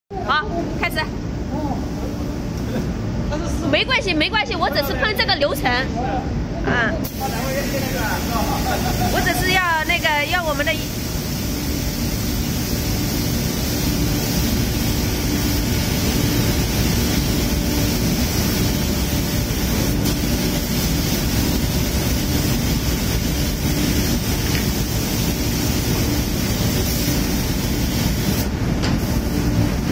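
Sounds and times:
spray gun hissing: 0:07.0 - 0:29.9.

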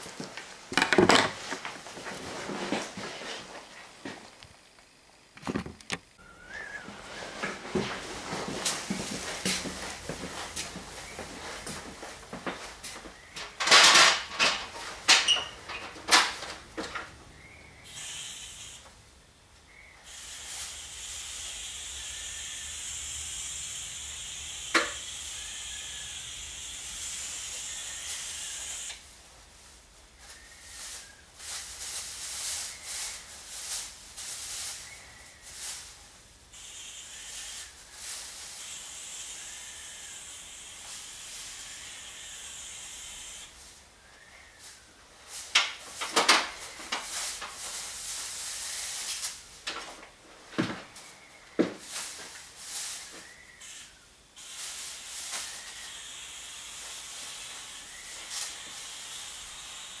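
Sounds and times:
aerosol can spraying: 0:17.9 - 0:18.8, 0:20.0 - 0:29.0, 0:35.5 - 0:43.7, 0:46.6 - 0:49.4, 0:51.8 - 1:00.0.

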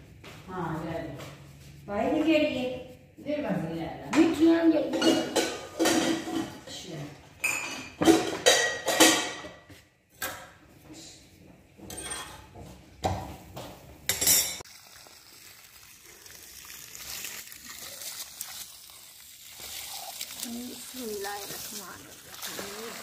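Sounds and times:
dishes and utensils clattering: 0:04.2 - 0:10.5, 0:11.8 - 0:12.8, 0:14.1 - 0:14.6
water spraying from hose: 0:14.6 - 0:23.0.

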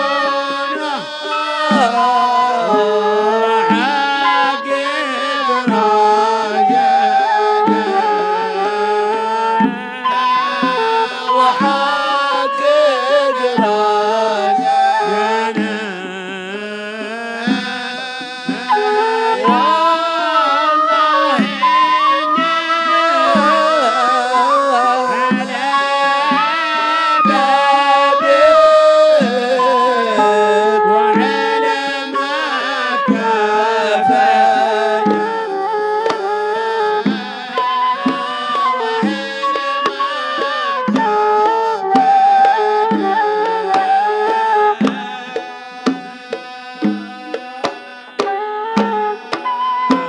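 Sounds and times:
man singing devotional song: 0:00.0 - 0:49.6
hand-drum beats: 0:00.0 - 0:50.0.

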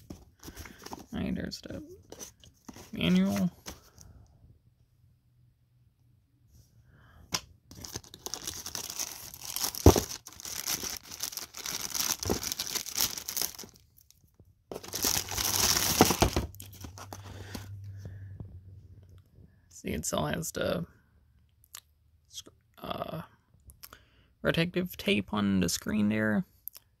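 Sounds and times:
plastic bag crinkling: 0:07.7 - 0:14.1, 0:14.7 - 0:17.6.

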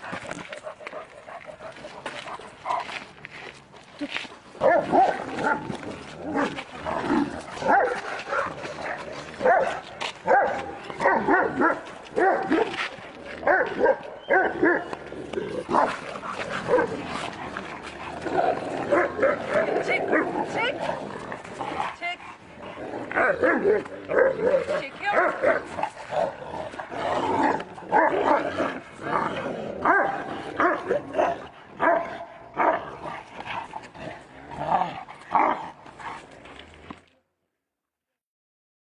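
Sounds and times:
dog barking: 0:04.6 - 0:05.6, 0:07.6 - 0:08.6, 0:09.4 - 0:12.8, 0:13.4 - 0:14.9, 0:25.1 - 0:25.7, 0:29.8 - 0:32.8.

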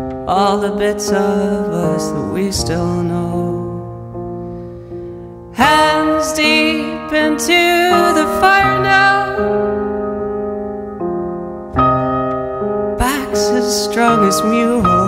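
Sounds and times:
grand piano chords: 0:00.0 - 0:15.0
person singing with vibrato: 0:00.2 - 0:04.0, 0:05.5 - 0:10.2, 0:13.0 - 0:15.0.

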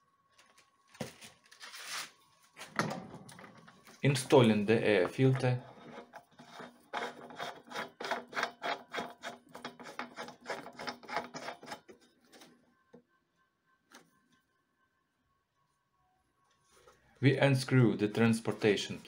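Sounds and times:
plastic housing scraping on threads: 0:05.0 - 0:12.1.

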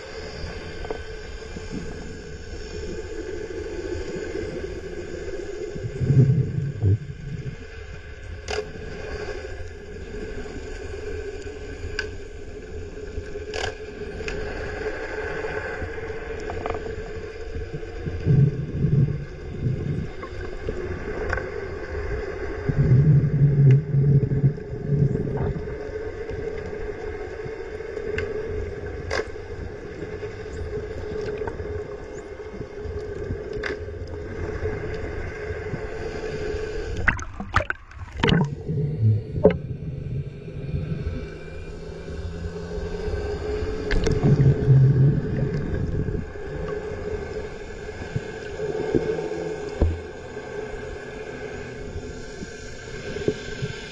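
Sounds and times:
low water noise: 0:00.0 - 0:53.9
low rumble bursts: 0:01.6 - 0:07.6, 0:34.0 - 0:47.8
steady hum: 0:14.0 - 0:53.9.

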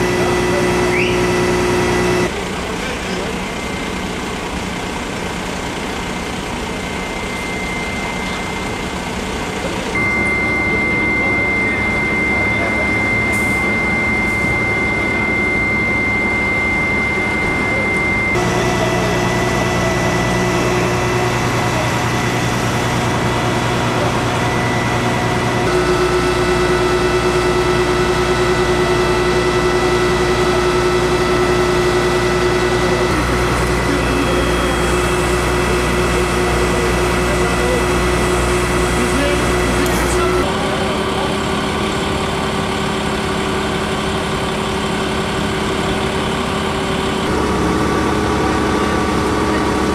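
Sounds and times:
fire truck engines idling: 0:00.0 - 0:49.9
thin high whine: 0:10.0 - 0:40.5.

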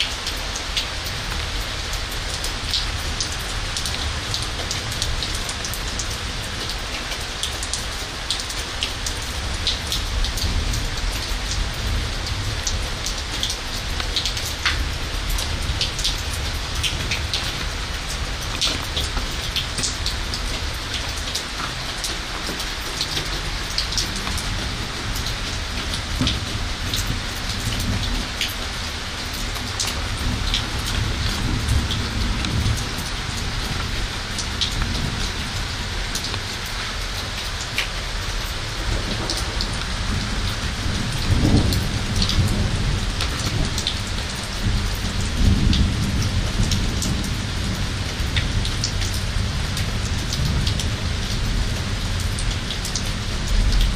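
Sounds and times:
heavy rain on hard surfaces: 0:00.0 - 0:53.9.

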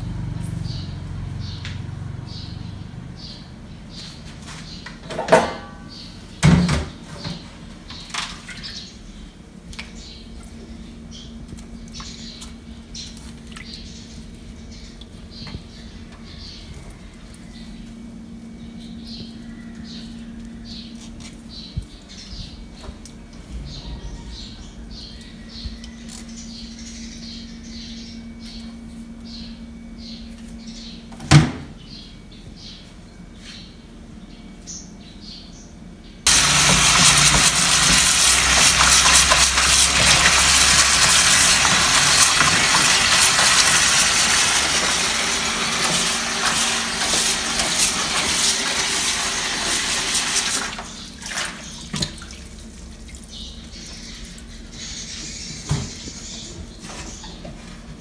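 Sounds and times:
tap water running into bowl: 0:36.3 - 0:52.4.

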